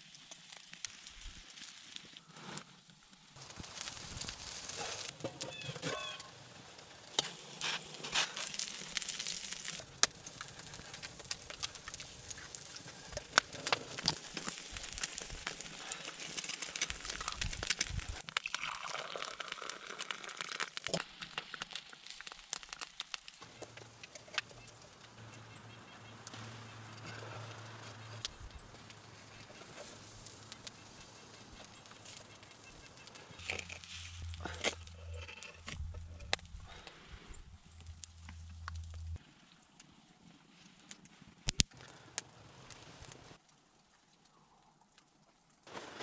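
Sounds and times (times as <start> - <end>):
eggs sizzling on hot rock: 0.0 - 2.3, 3.2 - 39.2
campfire crackling and popping: 0.0 - 39.9, 40.8 - 44.0, 44.9 - 46.0.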